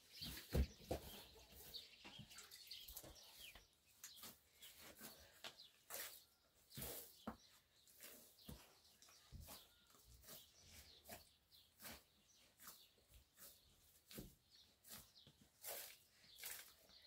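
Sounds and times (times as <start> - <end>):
dough kneaded by hand squelching: 3.2 - 17.0.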